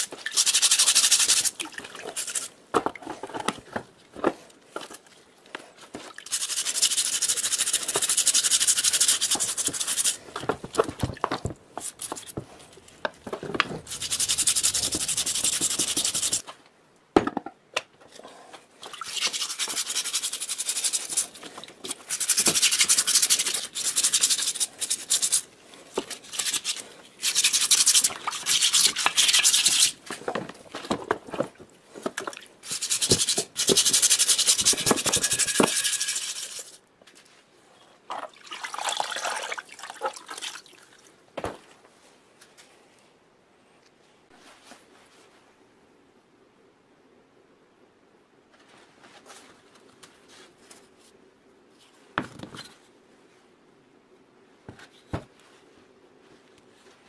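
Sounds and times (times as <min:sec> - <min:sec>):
stiff brush scrubbing metal: 0:13.8 - 0:16.4, 0:19.0 - 0:25.4, 0:32.6 - 0:36.8.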